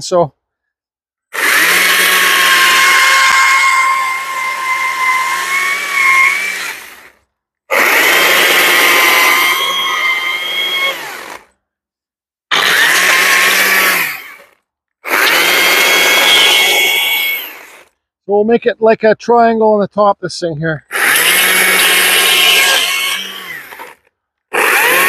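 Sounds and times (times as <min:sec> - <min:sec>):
battery chainsaw cutting wood: 0:01.3 - 0:11.6, 0:12.5 - 0:18.0, 0:20.9 - 0:25.0.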